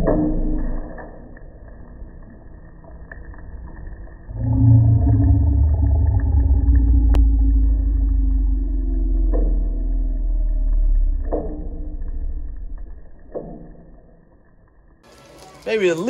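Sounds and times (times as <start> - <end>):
low engine hum: 4.3 - 13.3.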